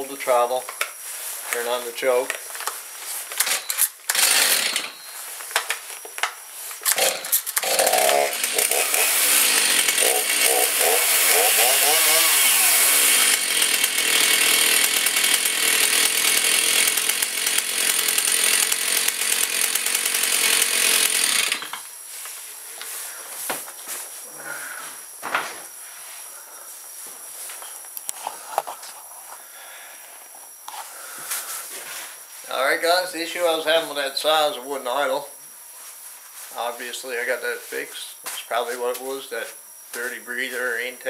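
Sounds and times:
chainsaw engine revving: 3.4 - 5.0, 6.9 - 21.9
chainsaw starter cord pulls: 3.4 - 5.1, 6.8 - 21.9.

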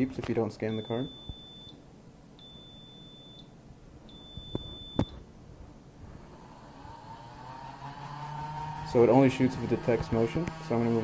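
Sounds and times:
high-pitched buzzer beeps: 0.7 - 1.8, 2.4 - 3.5, 4.1 - 5.2.

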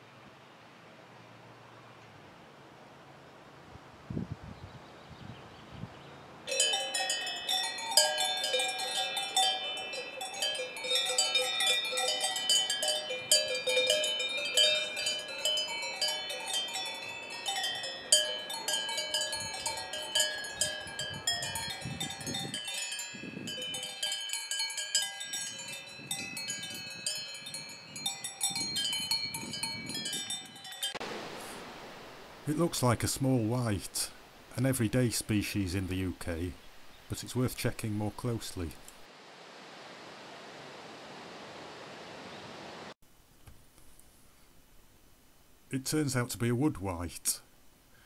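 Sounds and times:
cowbells clanking: 6.5 - 31.0.

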